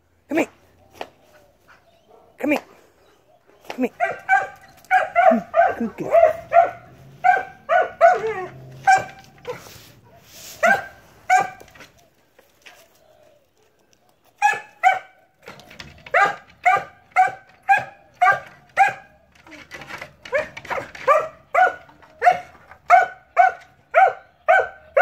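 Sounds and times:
dog barking high-pitched: 0:04.0 - 0:09.7, 0:10.6 - 0:11.7, 0:14.4 - 0:15.2, 0:16.1 - 0:19.1, 0:20.3 - 0:25.0.

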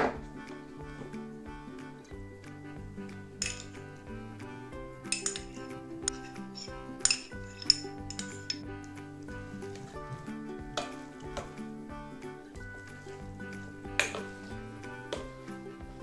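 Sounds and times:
background music: 0:00.0 - 0:16.0
metal spoon clinking on bowl: 0:03.4 - 0:03.8, 0:05.0 - 0:08.7, 0:14.0 - 0:14.4.

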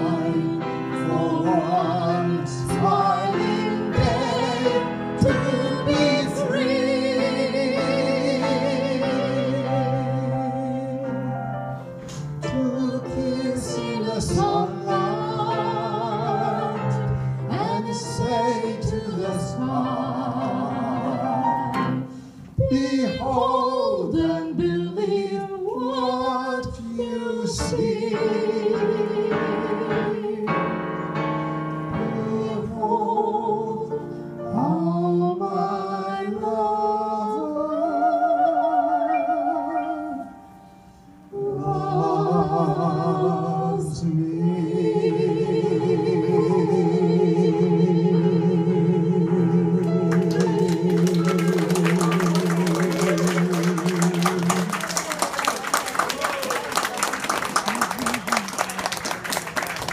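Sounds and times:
piano accompaniment: 0:00.0 - 0:59.9
woman singing: 0:12.5 - 0:21.5, 0:22.6 - 0:30.5.

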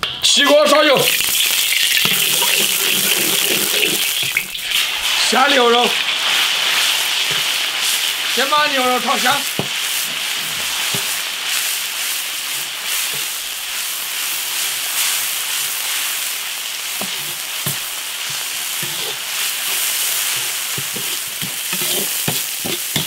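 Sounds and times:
beef sizzling in wok: 0:00.8 - 0:23.0
spatula knocking and scraping pan: 0:06.8 - 0:07.6, 0:09.2 - 0:11.2, 0:12.6 - 0:13.4, 0:17.0 - 0:23.0.

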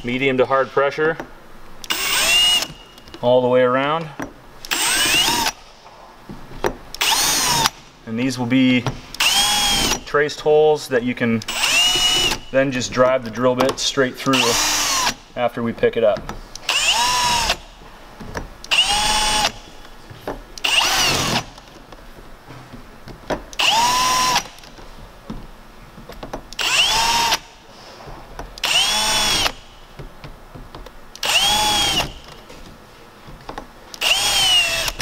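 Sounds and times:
cordless drill whining: 0:01.8 - 0:02.8, 0:04.6 - 0:05.6, 0:07.0 - 0:07.8, 0:09.2 - 0:10.0, 0:11.5 - 0:12.5, 0:14.3 - 0:15.2, 0:16.6 - 0:17.7, 0:18.7 - 0:19.7, 0:20.6 - 0:21.6, 0:23.6 - 0:24.7, 0:26.6 - 0:27.5, 0:28.6 - 0:29.7, 0:31.2 - 0:32.4, 0:34.0 - 0:35.0.

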